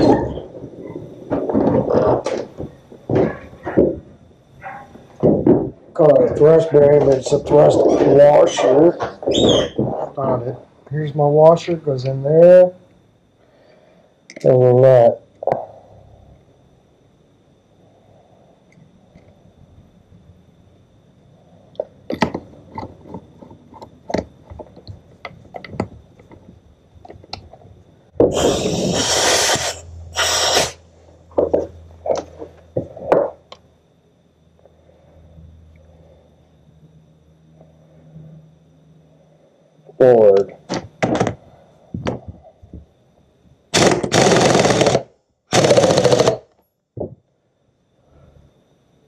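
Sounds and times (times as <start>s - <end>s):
loud burst of noise: 28.2s - 30.8s, 43.7s - 46.5s
pneumatic impact wrench hammering: 28.2s - 30.8s, 43.7s - 46.6s.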